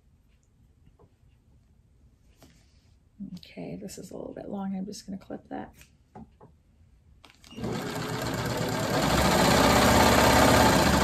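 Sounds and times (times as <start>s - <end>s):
sewing machine stitching: 7.4s - 11.0s.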